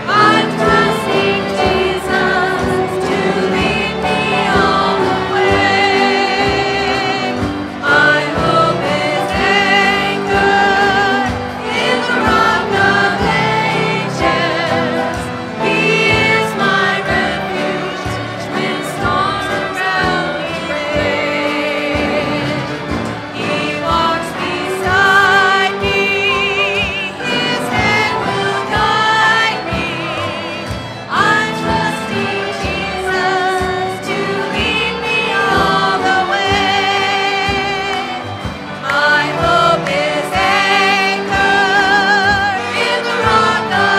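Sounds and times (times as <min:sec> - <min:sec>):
gospel choir singing: 0:00.0 - 0:43.9.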